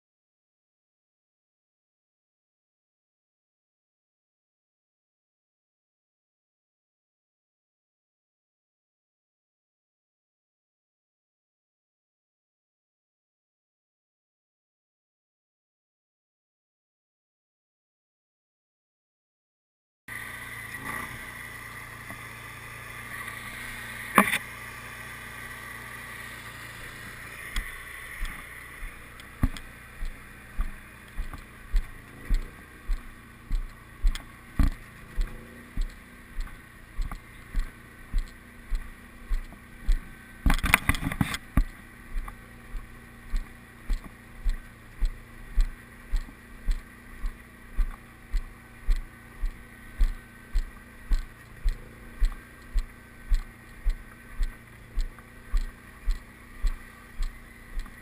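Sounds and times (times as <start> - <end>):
trailer rolling hum: 20.2 - 58.0
low thumps: 27.6 - 40.6.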